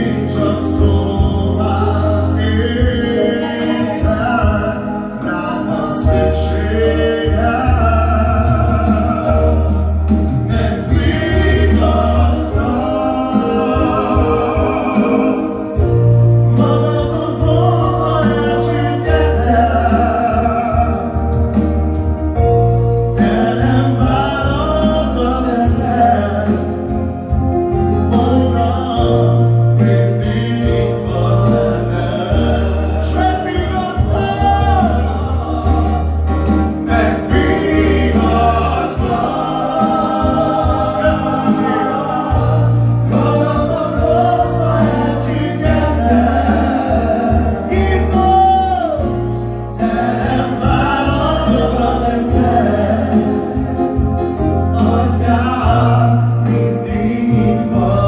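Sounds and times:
man singing lead through microphone: 0.0s - 21.6s, 22.3s - 58.0s
backing voices singing: 0.0s - 58.0s
electronic keyboard chords: 0.0s - 58.0s.

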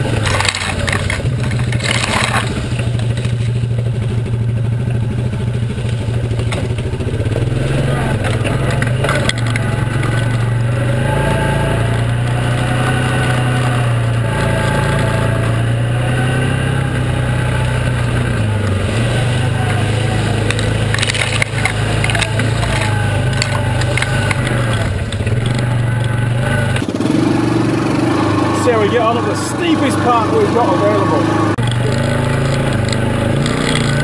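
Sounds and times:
knocks and rattles: 0.0s - 10.9s, 19.8s - 27.0s
tyres rolling through grass: 0.0s - 34.0s
vehicle engine running: 0.0s - 34.0s.

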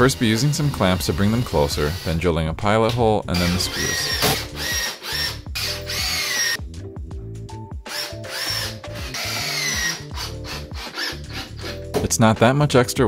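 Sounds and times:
cordless drill bursts: 0.0s - 2.2s, 3.4s - 6.6s, 7.9s - 11.8s.

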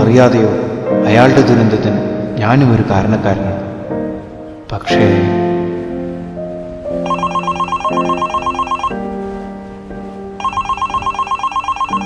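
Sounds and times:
soft background music: 0.0s - 12.0s
mobile phone ringing with beeps: 7.0s - 9.1s, 10.4s - 12.0s.

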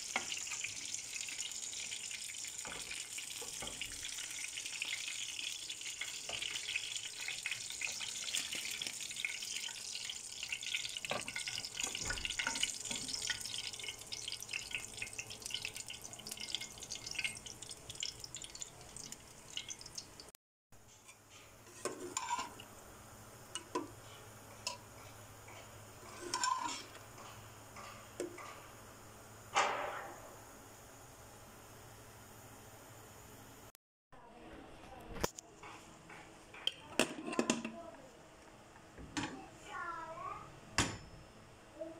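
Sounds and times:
oil sizzling in frying pan: 0.0s - 20.3s, 21.0s - 29.0s.

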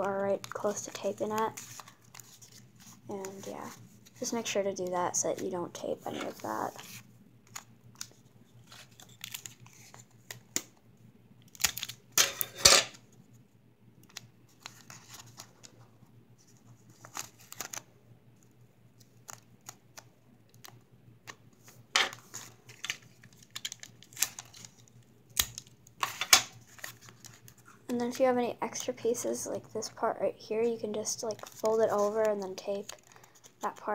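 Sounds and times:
paper crinkling: 0.0s - 4.5s, 6.2s - 10.6s, 14.0s - 17.8s, 19.0s - 28.2s, 31.2s - 33.9s.

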